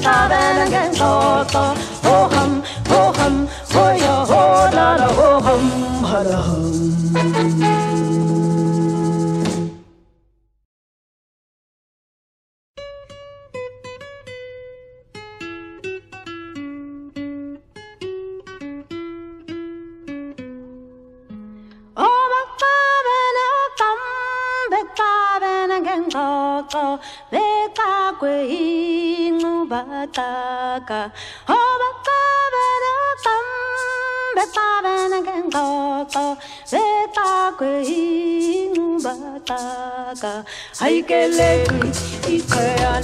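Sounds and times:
person singing with vibrato: 0:00.0 - 0:09.7, 0:22.0 - 0:43.0
backing music with low bass: 0:41.2 - 0:43.0.

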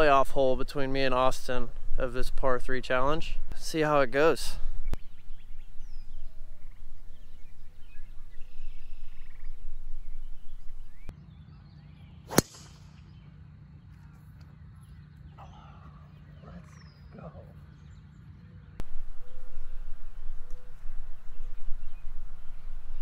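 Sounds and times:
golf club striking ball: 0:12.3 - 0:13.0.

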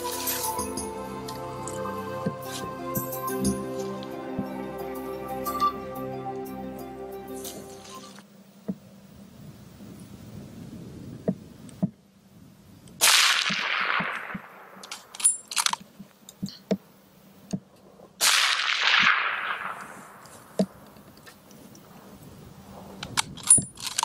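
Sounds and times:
rifle shots with echo: 0:13.0 - 0:15.2, 0:18.2 - 0:20.6.

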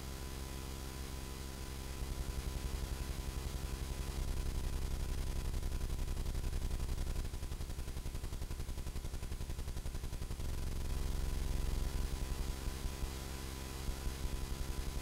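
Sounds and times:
pulsing electrical hum: 0:10.1 - 0:15.0.

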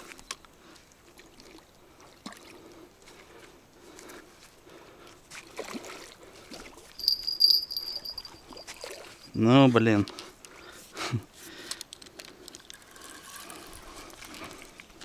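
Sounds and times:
river water sloshing and splashing: 0:00.7 - 0:06.9.

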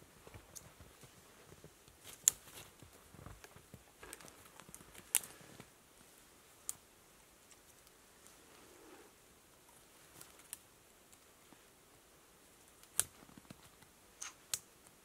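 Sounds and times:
branches crackling: 0:00.2 - 0:06.8, 0:12.6 - 0:14.7
dry twigs snapping: 0:01.9 - 0:02.8, 0:03.4 - 0:05.4, 0:12.8 - 0:13.6.

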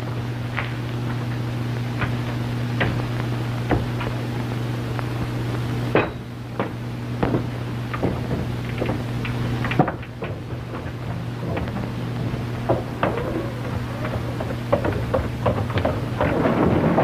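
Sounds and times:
sharp clicks and knocks: 0:05.9 - 0:17.0
low soundtrack hum: 0:09.0 - 0:15.6.

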